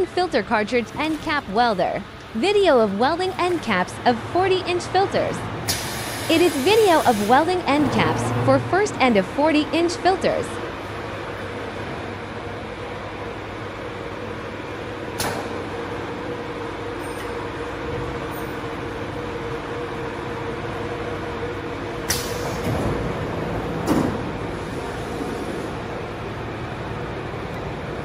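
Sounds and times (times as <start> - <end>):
air hiss: 5.7 - 7.5.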